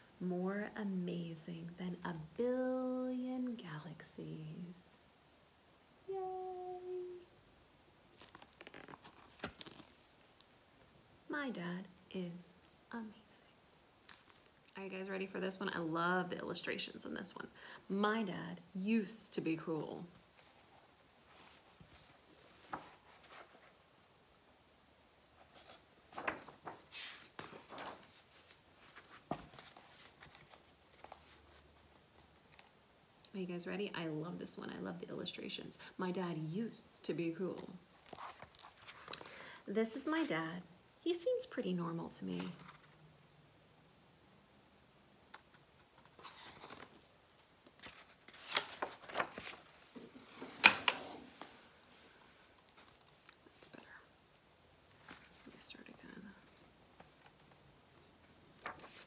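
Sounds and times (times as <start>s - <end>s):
book pages rustling and flapping: 8.1s - 10.6s, 14.0s - 14.7s, 20.2s - 23.8s, 25.4s - 32.8s, 37.6s - 39.3s, 42.4s - 43.0s, 45.3s - 51.8s, 52.4s - 53.6s, 55.0s - 55.6s, 57.0s - 59.0s.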